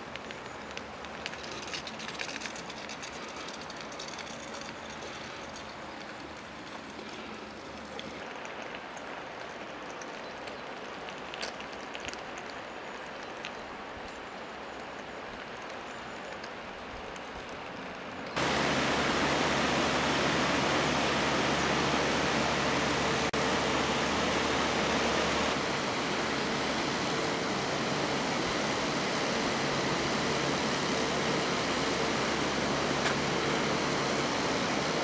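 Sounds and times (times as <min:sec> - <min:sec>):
river water rushing: 0:18.4 - 0:30.5.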